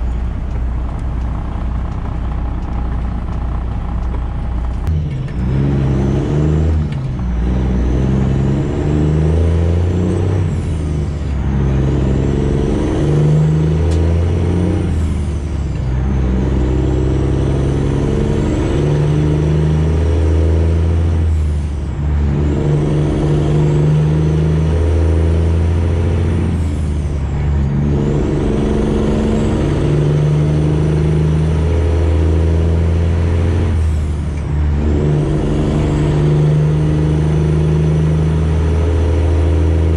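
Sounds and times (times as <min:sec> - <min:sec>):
truck accelerating through gears: 0:00.0 - 0:39.9.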